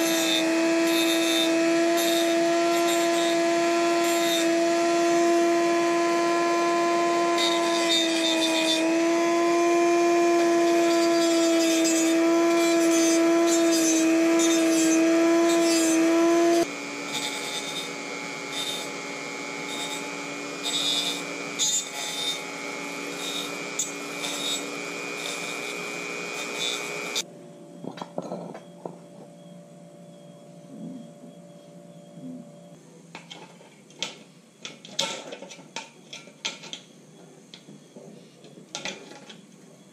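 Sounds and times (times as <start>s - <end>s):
rotary tool grinding metal: 0.0s - 27.3s
clicks and knocks of metal: 33.2s - 36.9s.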